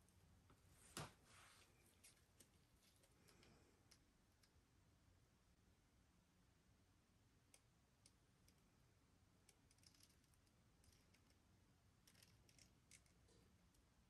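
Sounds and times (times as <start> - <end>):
small faint clicks and ticks: 2.0 - 4.7, 7.4 - 8.8, 9.4 - 13.9.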